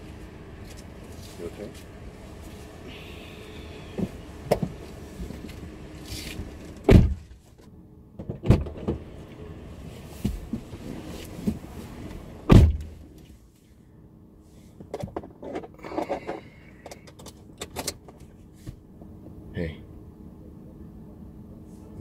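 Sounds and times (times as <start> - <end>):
car door shutting: 6.3 - 7.4, 8.2 - 9.1, 12.4 - 13.0.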